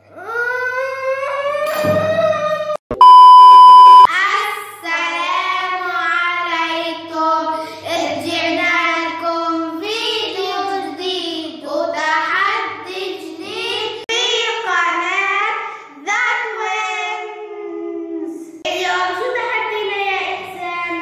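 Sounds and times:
test-tone beep: 2.9s - 4.1s.

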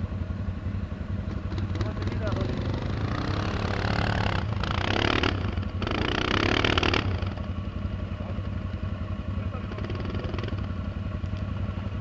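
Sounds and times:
quad bike idling: 0.0s - 12.0s
quad bike engine revving: 1.3s - 7.5s, 9.3s - 10.9s.

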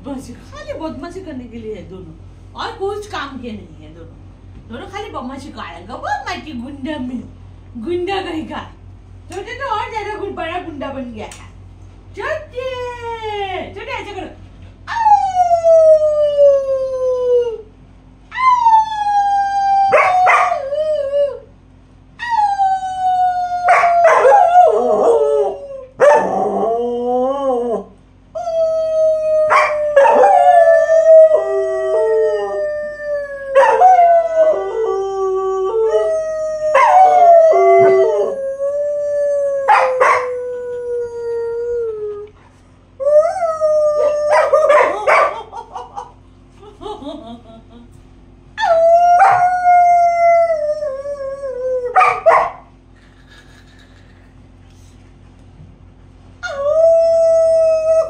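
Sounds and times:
dog howling: 18.4s - 21.5s, 22.2s - 42.3s, 43.0s - 45.4s, 48.6s - 52.7s
woman howling: 28.4s - 42.3s, 43.0s - 45.8s, 48.6s - 52.0s.

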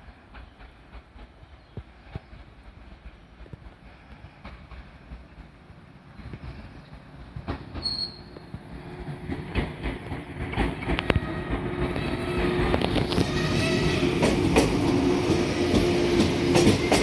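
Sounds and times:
electric train approaching: 0.0s - 17.0s
train wheels clicking over rail joints: 0.0s - 17.0s
short high squeal: 7.8s - 8.4s.

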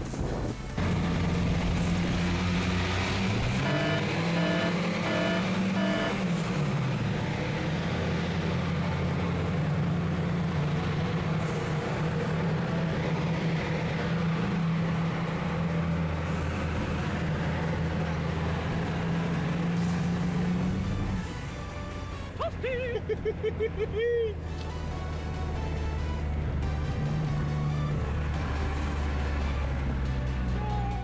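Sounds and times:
car engine revving high: 0.8s - 8.2s
short beeps: 3.6s - 6.2s.

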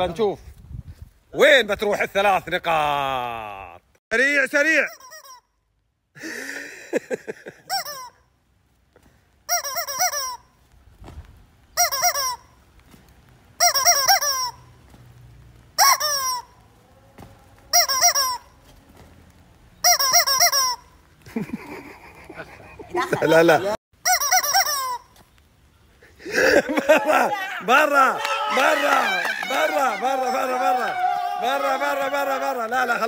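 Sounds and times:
rubber chicken toy squawking: 4.7s - 5.5s, 7.7s - 8.2s, 9.5s - 10.6s, 11.8s - 12.6s, 13.6s - 14.7s, 15.8s - 16.6s, 17.7s - 18.6s, 19.8s - 21.0s, 24.0s - 25.1s.

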